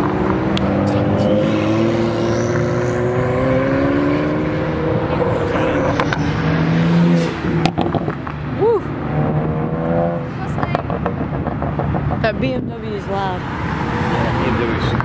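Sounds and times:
car accelerating past: 0:00.0 - 0:08.4
car engine low tone: 0:00.0 - 0:13.4.

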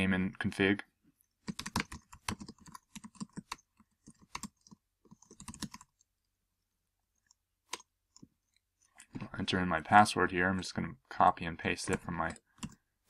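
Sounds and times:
typing on computer keyboard: 0:01.4 - 0:06.1, 0:11.8 - 0:12.8.

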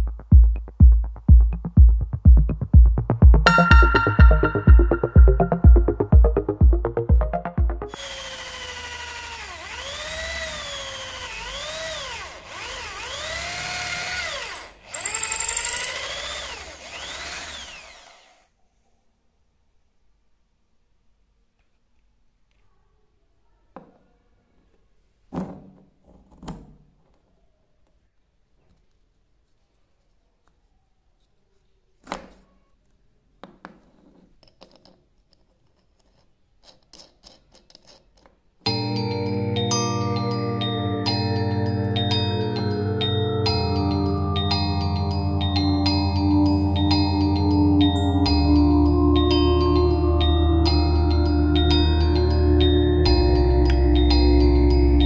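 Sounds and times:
electric drill boring wood: 0:07.9 - 0:18.5.

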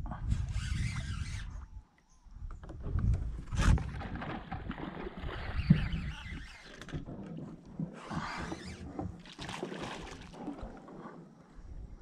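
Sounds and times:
kayak paddle splashing water: 0:03.6 - 0:11.3.

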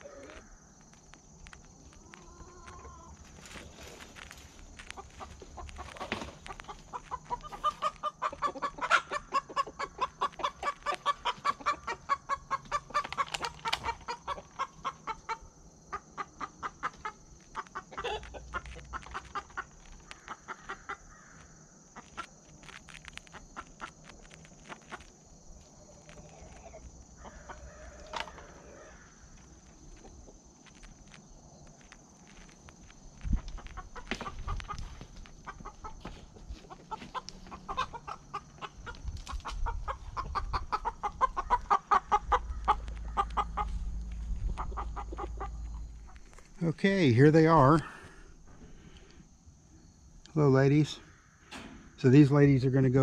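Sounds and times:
hen clucking: 0:01.6 - 0:03.8, 0:04.4 - 0:21.1, 0:23.2 - 0:30.6, 0:33.2 - 0:49.2.

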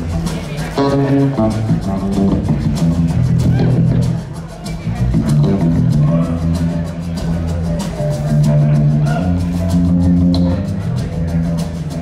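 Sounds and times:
electric guitar lead line: 0:00.0 - 0:04.1
bass guitar notes: 0:00.0 - 0:12.0
drum kit with cymbals: 0:00.0 - 0:12.0.

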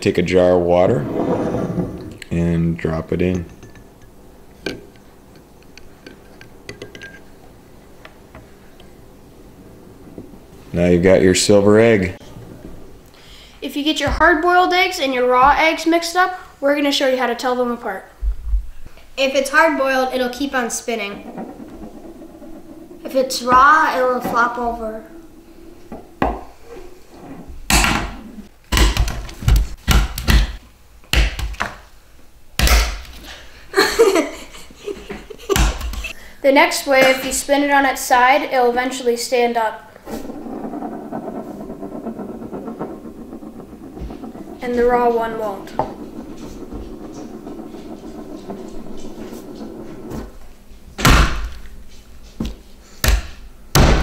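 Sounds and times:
eggs spinning on wooden table: 0:00.9 - 0:13.2, 0:19.2 - 0:29.8, 0:33.2 - 0:52.6
eggs knocking on wooden table: 0:25.9 - 0:26.5
boys laughing: 0:33.7 - 0:36.2.

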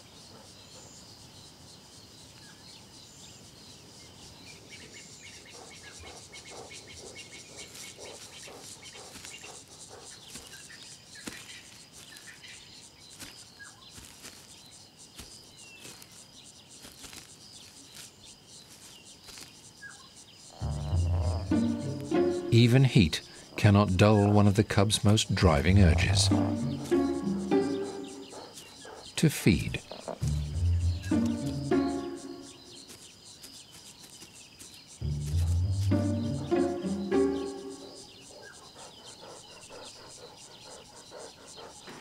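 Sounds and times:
high insect drone: 0:00.0 - 0:42.0.

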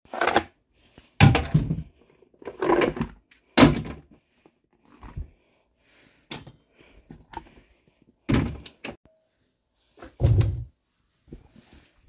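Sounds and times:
storage bins being handled: 0:00.0 - 0:05.5.

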